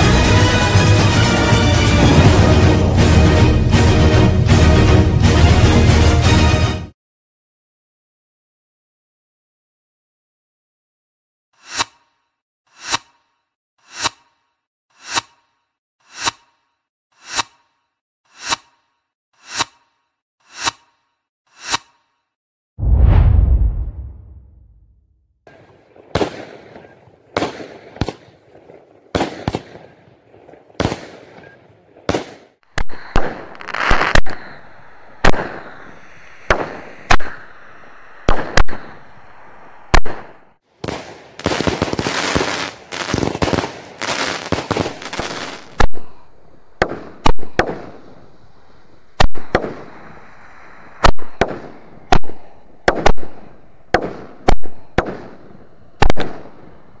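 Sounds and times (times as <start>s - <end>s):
firework bangs: 32.1s - 46.0s
firework crackling: 32.2s - 40.2s, 40.8s - 45.8s.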